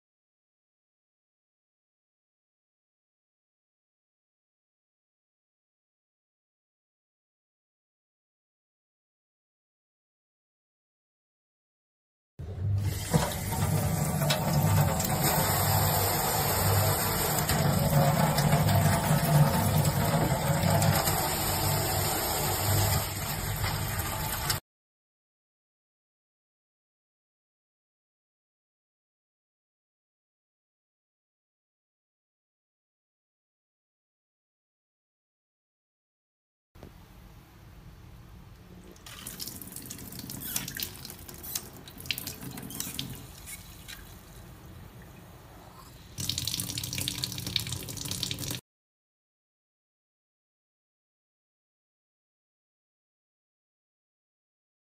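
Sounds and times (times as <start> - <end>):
tap water splashing into sink: 12.8 - 24.6, 38.9 - 44.2, 46.2 - 48.6.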